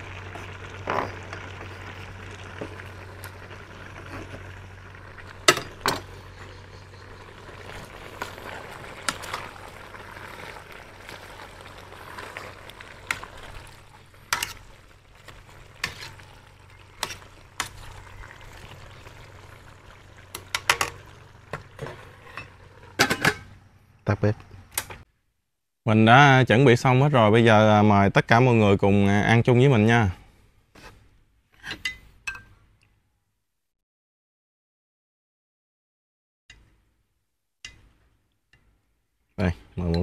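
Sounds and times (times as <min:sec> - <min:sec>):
stew sizzling and bubbling: 0:00.0 - 0:25.1
metal spoon scraping a pot: 0:14.3 - 0:14.8, 0:15.8 - 0:16.3, 0:16.9 - 0:18.0.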